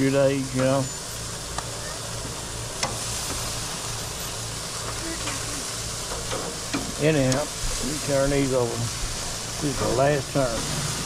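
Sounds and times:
meat sizzling on a grill: 0.0 - 11.0.

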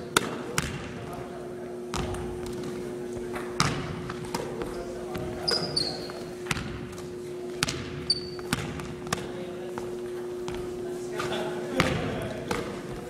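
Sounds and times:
steady hum: 0.0 - 13.0
basketball bouncing on wooden floor: 0.6 - 0.9, 1.9 - 2.6, 3.4 - 7.0, 7.6 - 10.7
sneaker squeaks: 2.0 - 13.0.

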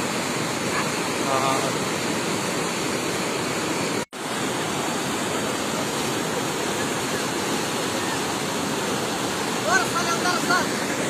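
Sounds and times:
stream torrent rushing: 0.0 - 11.0.

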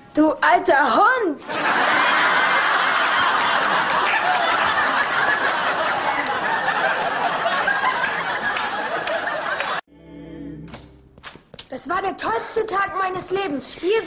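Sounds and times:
studio audience laughing: 1.4 - 9.8.

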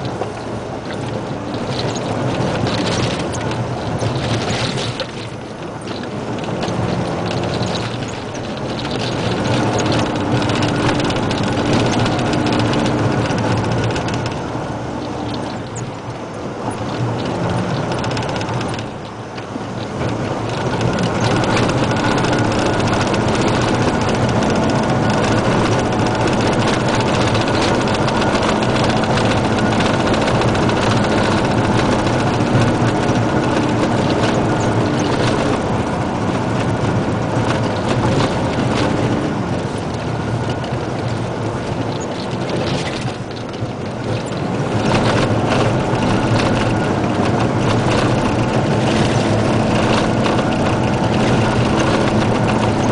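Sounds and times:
diesel truck engine running: 0.0 - 52.9
road and cab rattle: 0.0 - 52.9.

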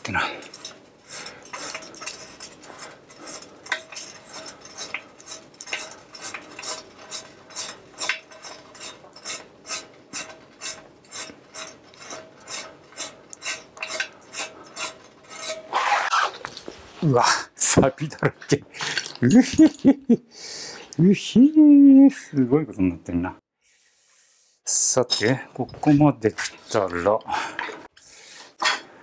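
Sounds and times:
hand tool clicking and scraping: 0.0 - 16.9, 25.2 - 29.0.

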